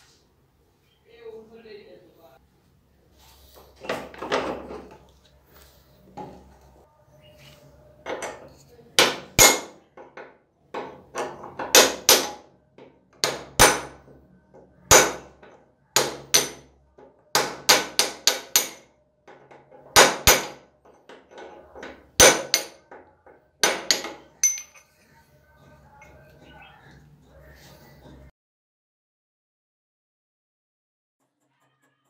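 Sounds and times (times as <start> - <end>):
hammer striking metal: 9.0 - 9.8, 10.8 - 12.4, 13.2 - 14.0, 14.9 - 15.4, 16.0 - 16.7, 17.3 - 18.9, 19.9 - 20.7, 21.8 - 22.9, 23.6 - 24.9.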